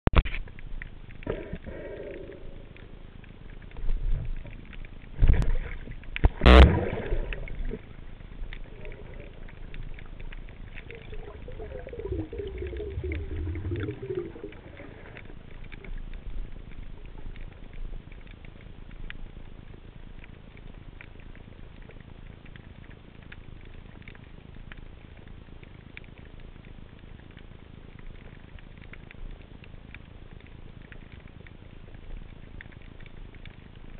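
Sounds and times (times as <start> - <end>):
underwater crackle and hiss: 0.2 - 33.9
low rumble: 0.6 - 20.4.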